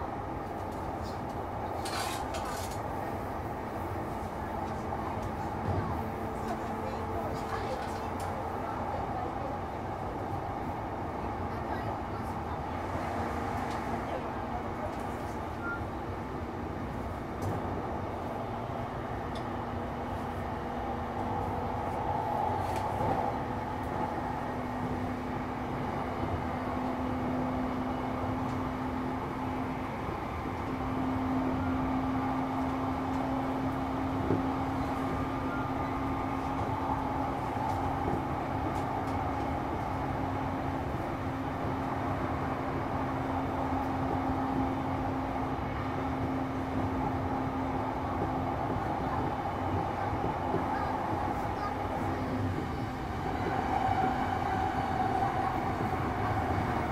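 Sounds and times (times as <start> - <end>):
train low hum: 0.0 - 56.9
train wheels rumbling on rail: 0.0 - 56.9.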